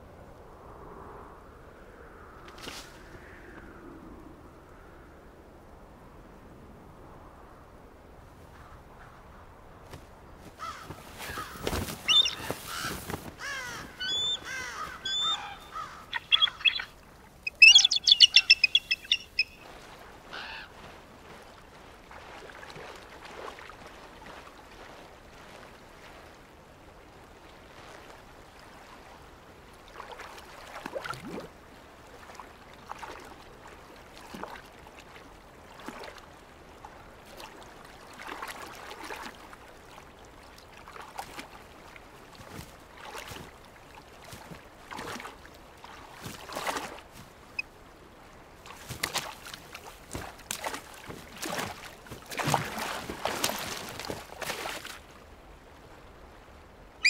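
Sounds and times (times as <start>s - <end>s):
eagle calling: 10.7s - 19.6s, 20.3s - 20.7s.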